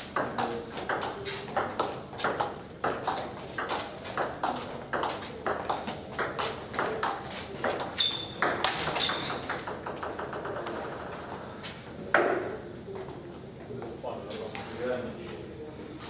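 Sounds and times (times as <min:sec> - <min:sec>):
table tennis ball hits and bounces: 0:00.1 - 0:11.1.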